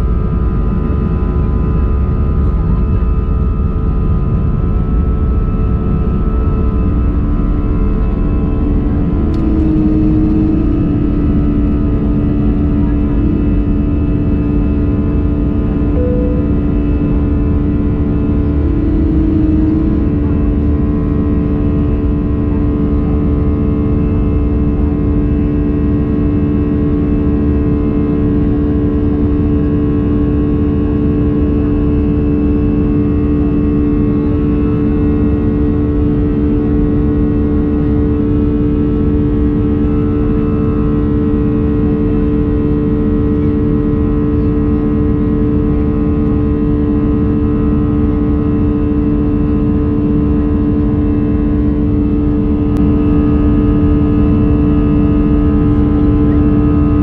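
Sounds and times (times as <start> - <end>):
steady engine hums: 0.0 - 57.0
jet engine cabin rush: 4.2 - 23.1.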